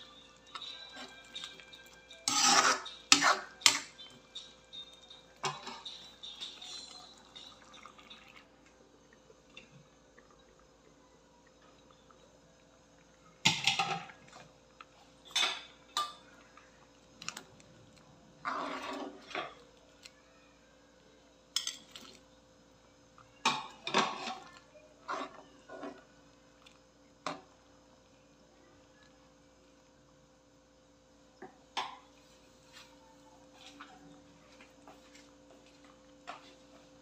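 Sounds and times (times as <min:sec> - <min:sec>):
faint steady hum: 0:00.0 - 0:37.0
ladle scraping a wok: 0:00.9 - 0:03.9, 0:18.4 - 0:19.6.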